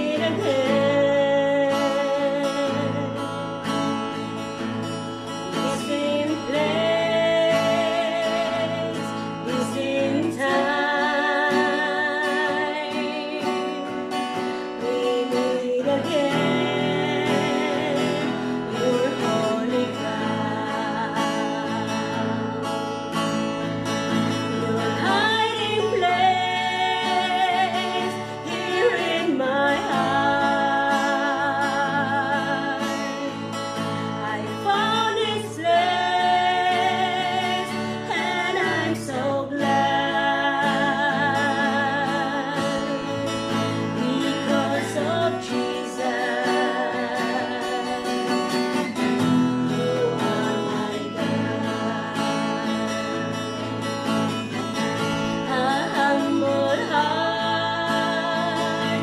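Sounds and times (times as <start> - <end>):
women singing gospel duet: 0.0 - 3.4, 5.5 - 22.7, 24.1 - 53.4, 55.2 - 59.0
acoustic guitar: 0.0 - 59.0.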